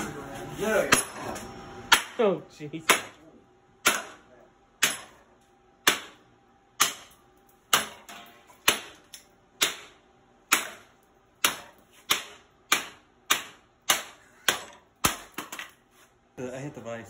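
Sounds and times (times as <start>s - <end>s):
knife chopping into wood: 11.4s - 15.4s.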